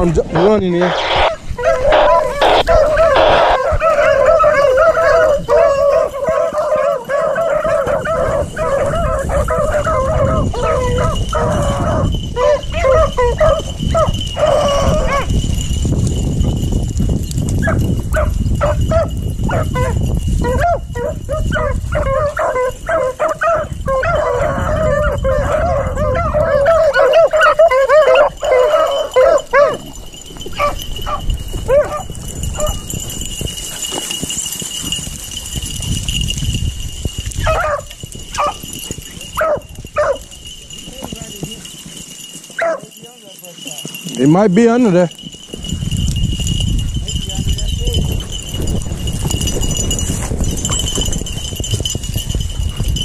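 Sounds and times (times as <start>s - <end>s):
dogs baying and howling: 0.9s - 15.8s, 17.5s - 35.0s, 37.2s - 44.2s.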